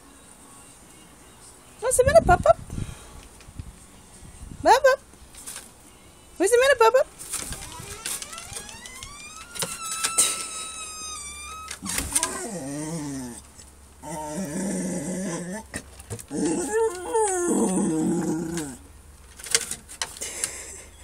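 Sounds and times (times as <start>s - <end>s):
dog whining and grumbling: 10.1s - 18.9s.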